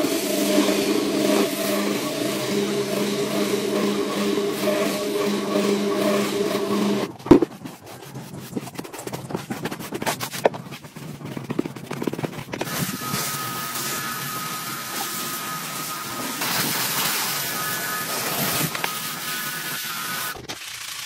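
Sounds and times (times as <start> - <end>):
floor scrubber motor humming: 0.0 - 7.4, 12.6 - 21.0
thump: 7.3 - 7.5
pressure washer spraying: 12.6 - 20.8.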